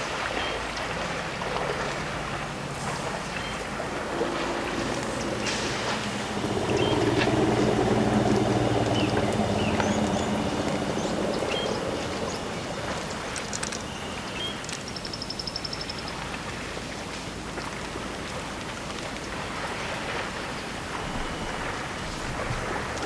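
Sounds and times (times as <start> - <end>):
insects buzzing in bursts: 0.0 - 23.0
steady noisy wash: 0.0 - 23.0
bird chirps: 3.3 - 7.7, 8.3 - 12.4.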